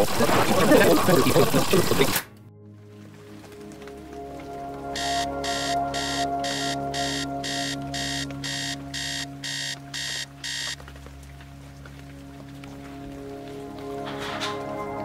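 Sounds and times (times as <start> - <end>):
phone alarm beeping: 5.0 - 10.8.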